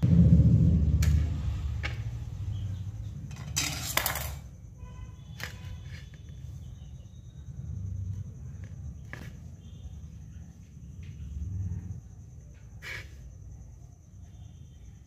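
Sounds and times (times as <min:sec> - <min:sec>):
handling rumble: 0:00.0 - 0:04.5.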